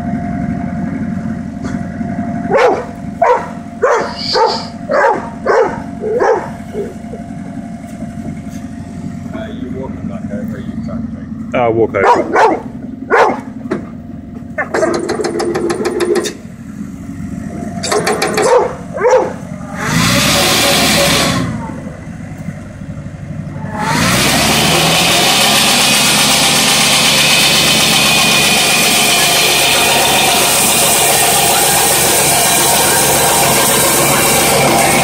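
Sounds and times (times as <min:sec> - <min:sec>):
sawmill engine running: 0:00.0 - 0:35.0
bandsaw blade cutting log: 0:17.8 - 0:21.6, 0:23.6 - 0:35.0.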